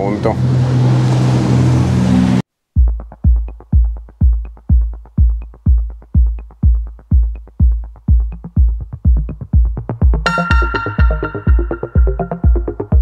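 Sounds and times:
electronic music with kick drum: 2.8 - 13.0.

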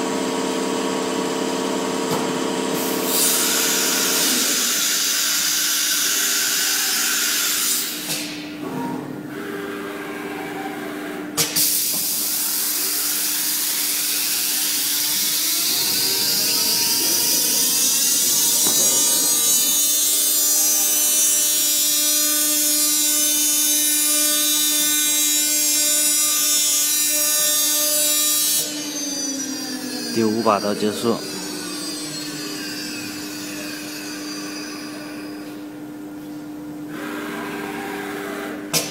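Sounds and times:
router spindle whine: 12.3 - 35.5.

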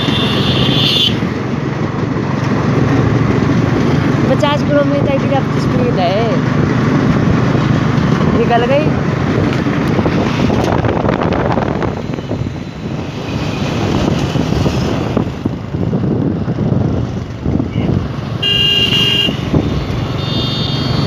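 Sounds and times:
vehicle horn honking: 0.0 - 1.2, 17.7 - 19.5, 20.1 - 21.0
wind on microphone: 0.0 - 18.4, 19.3 - 20.2
motorcycle running: 0.0 - 21.0.

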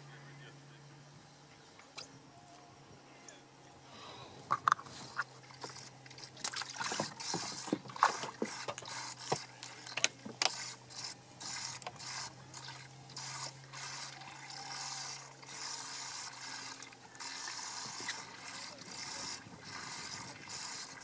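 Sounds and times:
mechanical rasping: 4.5 - 21.0
rod and reel clicks and rattles: 4.5 - 21.0.

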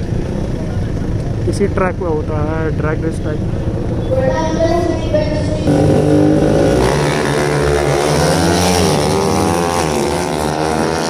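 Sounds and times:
racing engine revving: 3.6 - 11.0.

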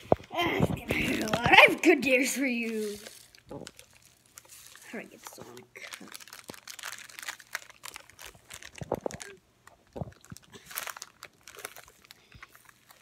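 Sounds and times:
plastic packet crinkling: 0.0 - 13.0.

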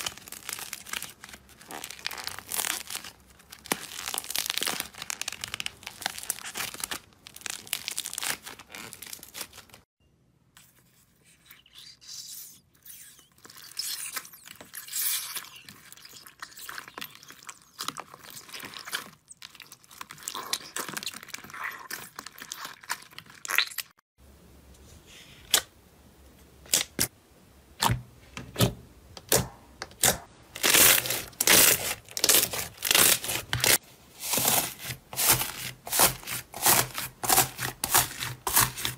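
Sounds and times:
slime crackling and tearing: 0.0 - 9.8, 30.0 - 38.9
slime squishing: 10.8 - 23.9, 30.0 - 38.9.

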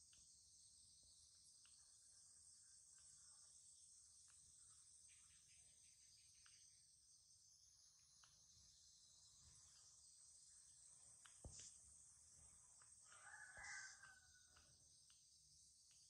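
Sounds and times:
high-pitched insect chorus: 0.0 - 16.0
soft ticks: 1.5 - 1.9, 4.2 - 4.5, 6.4 - 6.7, 8.2 - 8.4, 11.2 - 11.8, 12.7 - 16.0.

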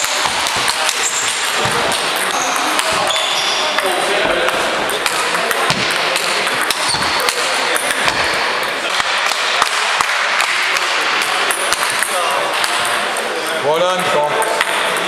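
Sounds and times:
table tennis ball clicking: 0.0 - 8.3
steady background noise: 0.0 - 15.0.

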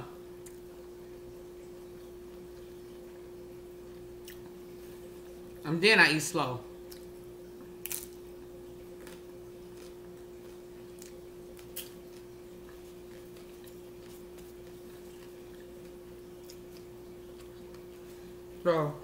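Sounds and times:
person chewing food: 3.8 - 5.0, 6.8 - 18.5.

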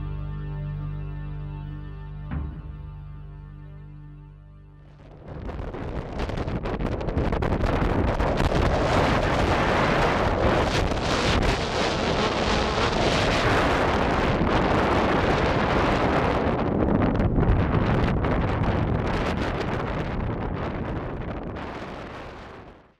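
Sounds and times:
strong wind buffeting microphone: 4.9 - 22.9.

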